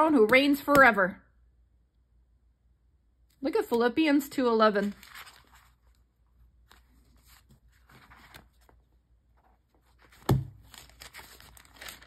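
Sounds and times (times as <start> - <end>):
thin pages rustling: 4.6 - 12.0
book thump: 10.1 - 10.7.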